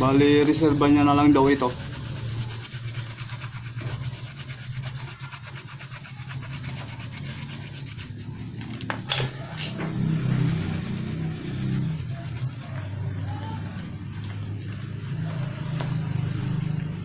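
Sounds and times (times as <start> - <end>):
rubber being rasped: 0.4 - 13.0.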